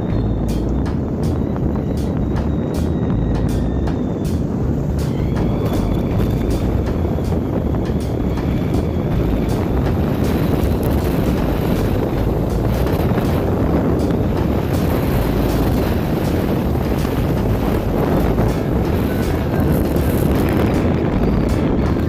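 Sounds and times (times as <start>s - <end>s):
tyres rumbling on road: 0.0s - 22.0s
wind buffeting microphone: 0.0s - 22.0s.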